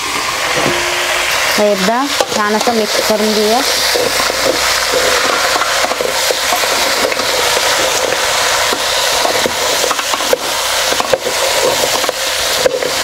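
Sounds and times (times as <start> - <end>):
meat sizzling in a metal pot: 0.0 - 13.0
spatula clicking and scraping: 3.7 - 13.0.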